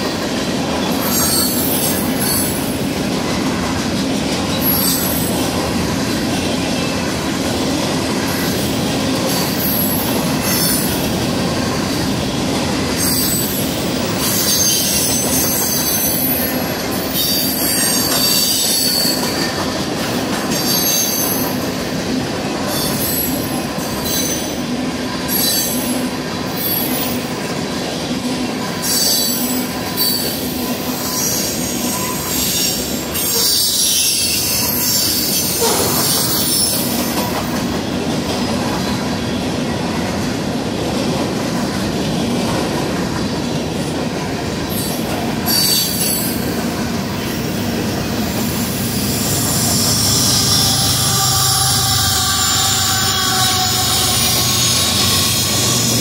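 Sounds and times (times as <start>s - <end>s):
train wheels rumbling on rail: 0.0s - 56.0s
high-pitched wheel squeal: 49.0s - 56.0s.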